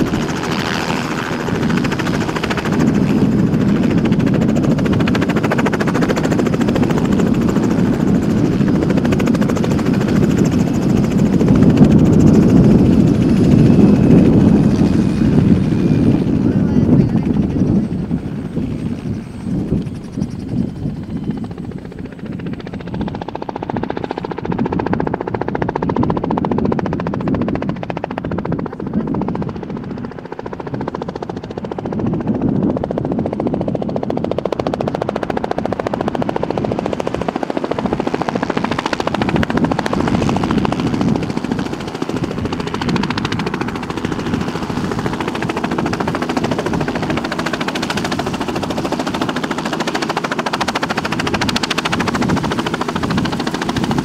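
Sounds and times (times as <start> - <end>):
helicopter rotor chopping: 0.0 - 54.0.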